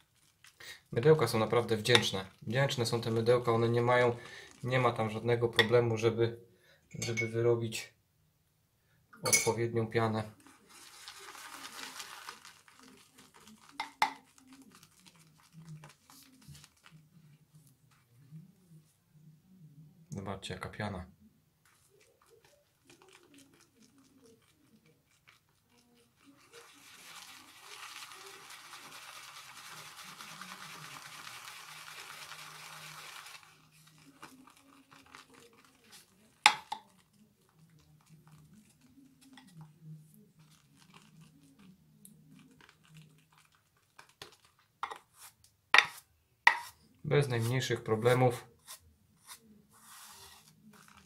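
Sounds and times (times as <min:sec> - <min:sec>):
brush knocking against bowl: 0:13.8 - 0:14.3, 0:36.4 - 0:36.9, 0:44.8 - 0:45.1, 0:45.8 - 0:46.8
shaving brush whipping lather: 0:22.0 - 0:36.9.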